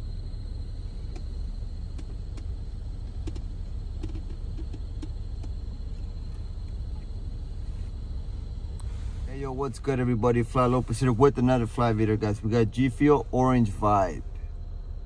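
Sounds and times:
car idling from inside: 0.0 - 15.0
faint light ticks: 1.0 - 1.3, 1.9 - 7.1.

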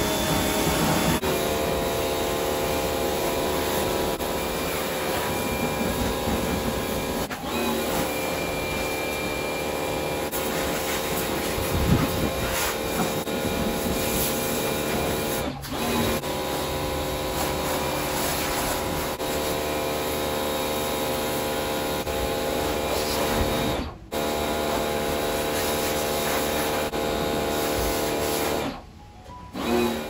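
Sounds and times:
water jet hissing: 0.0 - 1.2
pressure washer motor whine: 0.0 - 30.0.

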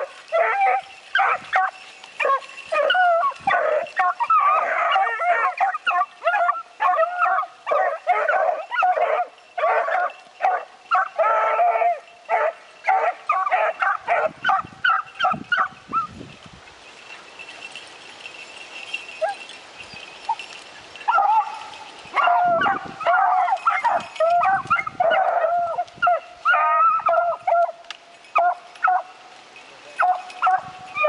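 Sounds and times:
hounds baying and yelping: 0.0 - 16.2, 16.8 - 31.0.

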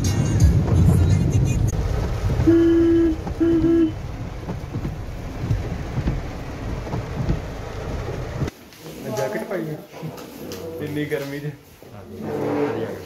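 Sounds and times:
rain on moving car: 0.0 - 8.5
car horn beeps: 2.4 - 4.0.

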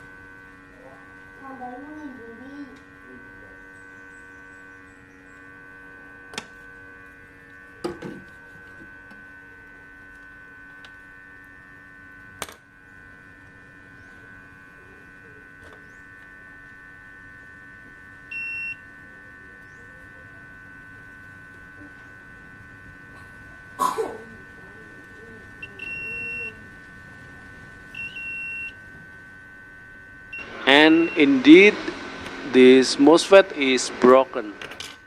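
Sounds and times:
steady electrical hum: 0.0 - 35.0
short electronic beep: 30.4 - 31.4.

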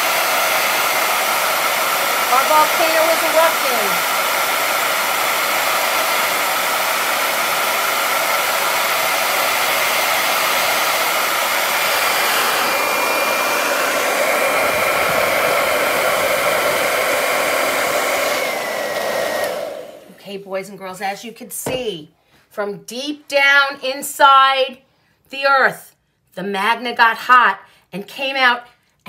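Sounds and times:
hair dryer blowing: 0.0 - 20.4.

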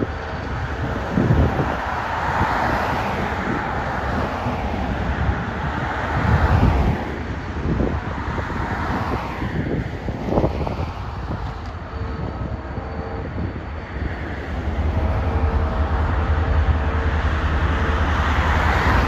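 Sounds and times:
car passing by: 0.0 - 19.0
road traffic passing: 0.0 - 19.0
wind buffeting microphone: 0.0 - 19.0.

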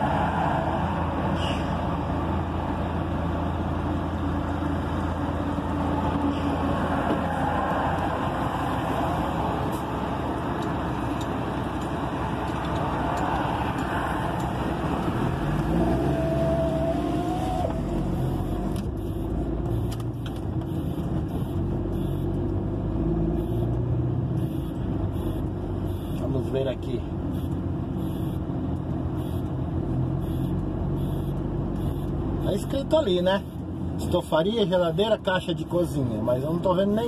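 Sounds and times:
truck passing close by: 0.0 - 18.6.

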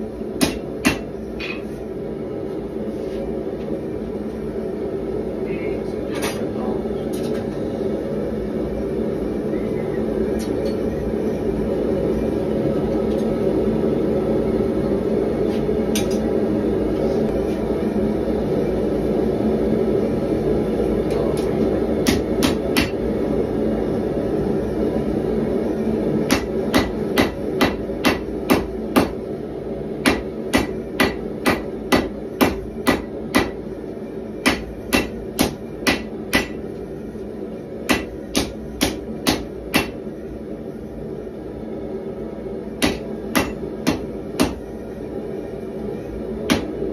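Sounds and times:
gas forge burner rushing: 0.0 - 46.9
hammer striking steel on anvil: 0.4 - 1.7, 22.0 - 23.0, 26.3 - 29.2, 30.0 - 33.6, 34.4 - 36.6, 37.9 - 40.0, 42.8 - 44.6, 46.5 - 46.8.

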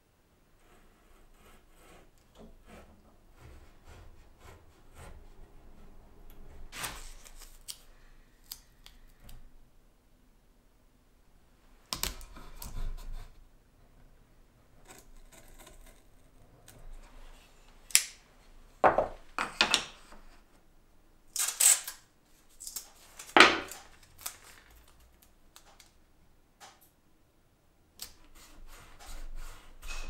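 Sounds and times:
masking tape ripping: 21.3 - 22.0.

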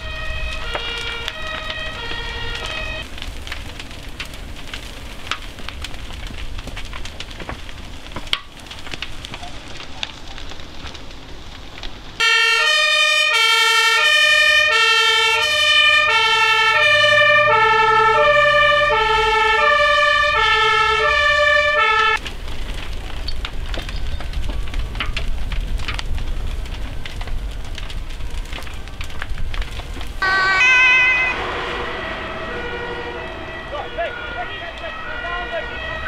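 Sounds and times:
fire engine two-tone siren: 0.0 - 3.2, 12.2 - 22.2, 30.1 - 36.0
large fire rushing and crackling: 0.0 - 36.0.

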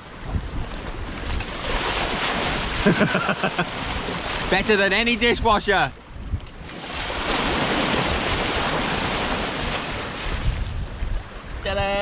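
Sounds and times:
seawater rushing and splashing: 0.0 - 12.0.

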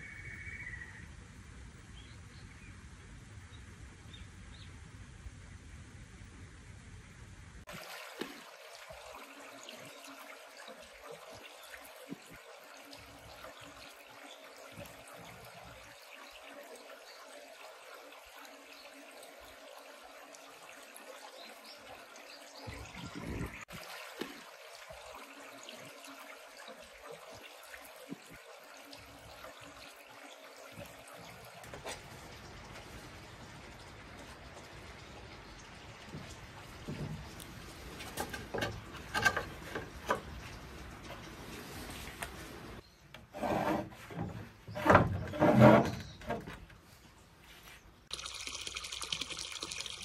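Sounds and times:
water running down concrete channel: 7.6 - 42.8, 48.0 - 50.0.

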